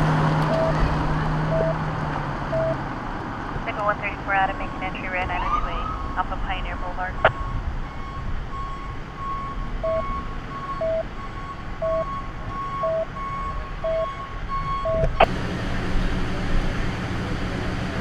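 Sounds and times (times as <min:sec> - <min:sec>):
idling vehicle engines rumbling: 0:00.0 - 0:18.0
electronic beeping: 0:00.5 - 0:00.8, 0:01.5 - 0:01.8, 0:02.5 - 0:02.8, 0:03.7 - 0:15.3
higher pulsing beep tone: 0:00.5 - 0:00.8, 0:01.5 - 0:01.8, 0:02.5 - 0:02.8, 0:04.0 - 0:15.3.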